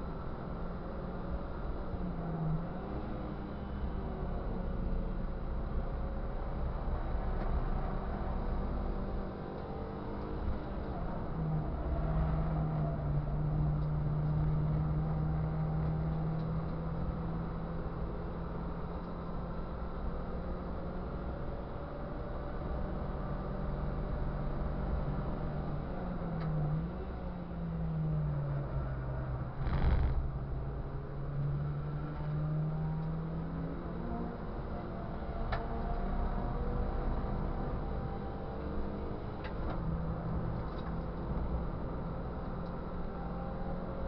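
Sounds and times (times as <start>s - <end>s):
road and wind noise: 0.0s - 44.0s
race car engine droning: 28.6s - 36.7s
race car engine revving: 29.5s - 30.4s
brief rumbling thump: 29.6s - 30.4s.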